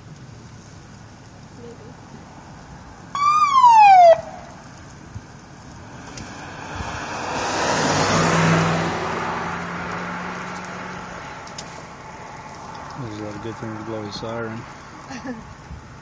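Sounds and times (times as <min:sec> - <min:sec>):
car passing by: 0:01.8 - 0:15.4
siren whoop: 0:03.2 - 0:04.5.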